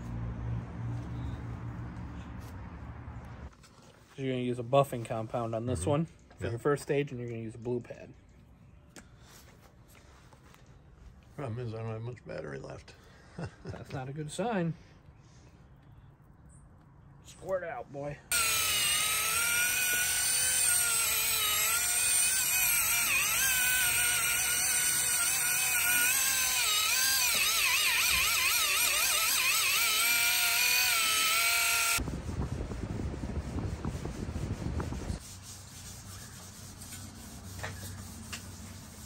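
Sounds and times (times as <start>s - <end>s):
power tool motor whine: 18.3s - 32.0s.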